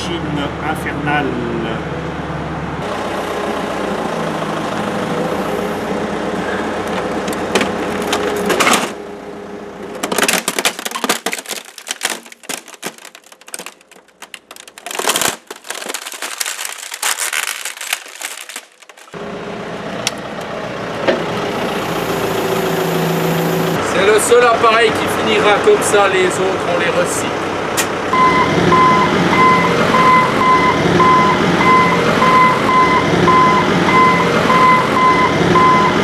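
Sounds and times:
digger engine running: 1.9s - 10.1s, 19.1s - 36.0s
plastic cracking and snapping: 10.0s - 19.2s.

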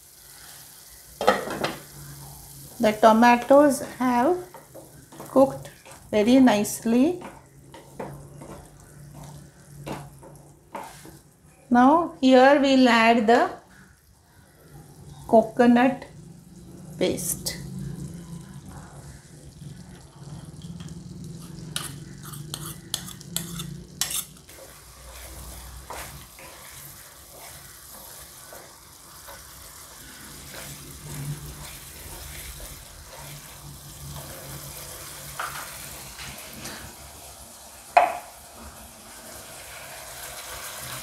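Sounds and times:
masala sizzling: 0.0s - 41.0s
wooden spatula scraping pan: 3.4s - 11.2s, 21.4s - 34.5s.

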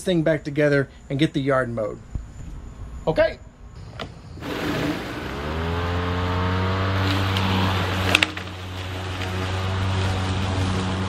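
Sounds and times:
lawnmower motor whining: 4.4s - 11.0s.

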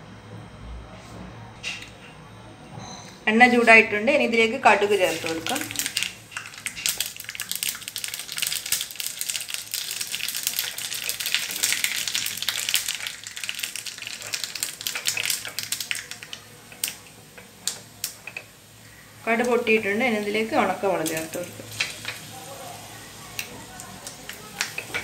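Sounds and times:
mustard seeds popping in oil: 5.0s - 18.6s, 19.3s - 22.3s, 23.3s - 25.0s.

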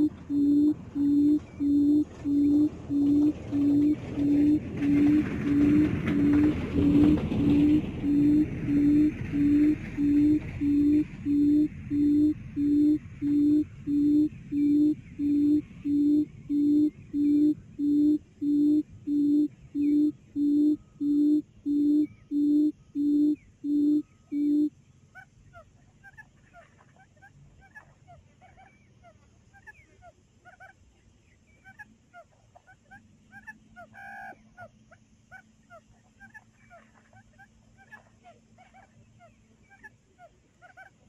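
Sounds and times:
rushing noise: 0.0s - 21.4s
quail call through speaker: 0.0s - 30.8s, 31.6s - 34.7s, 35.3s - 41.0s.

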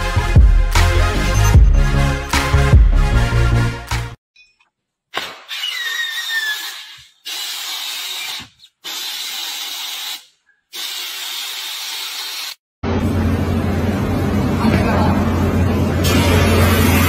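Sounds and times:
compressed air blow gun hissing: 6.2s - 12.6s.

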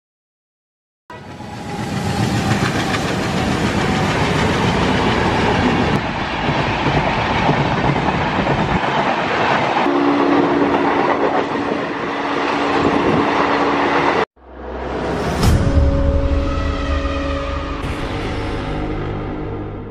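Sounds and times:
trains passing at high speed: 1.1s - 19.9s
train horn two-note chord: 9.9s - 10.9s, 14.4s - 19.9s.

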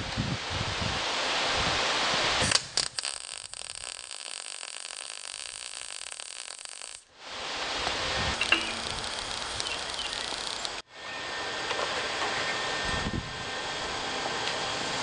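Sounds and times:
welding arc crackling and hissing: 0.0s - 10.8s
welder clicks: 8.4s - 10.8s.

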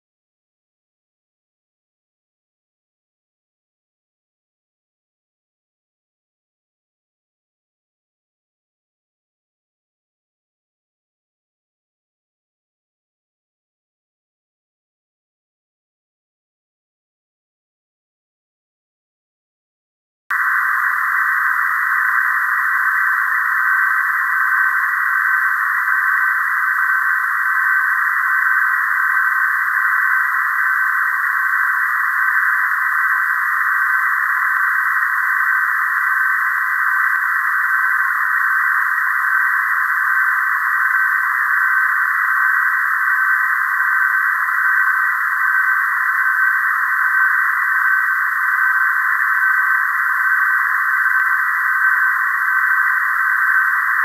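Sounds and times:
radio receiver hiss: 20.3s - 54.0s
thin steady data tone: 20.3s - 54.0s.

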